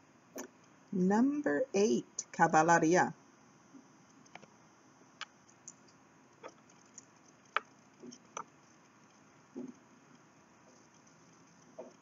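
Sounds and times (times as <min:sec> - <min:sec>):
faint clicks and taps: 0:05.2 - 0:12.0.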